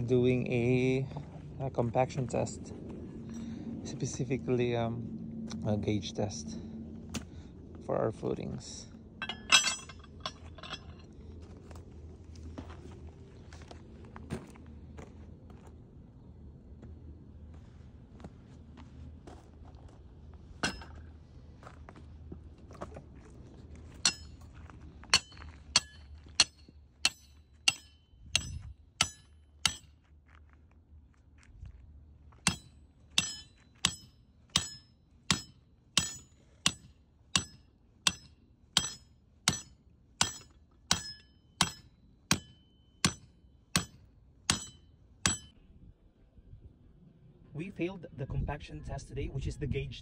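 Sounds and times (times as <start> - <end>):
hammer striking steel pin: 9.2 - 11.0, 20.6 - 21.0, 24.0 - 24.4, 25.1 - 29.9, 32.5 - 45.6.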